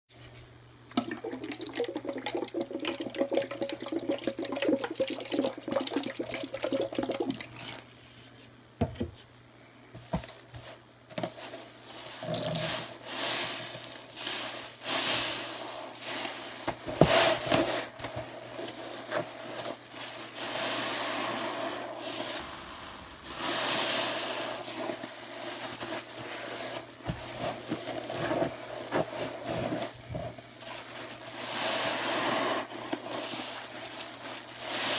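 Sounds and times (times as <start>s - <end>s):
sponge squelching water: 0.9s - 7.9s, 18.5s - 34.9s.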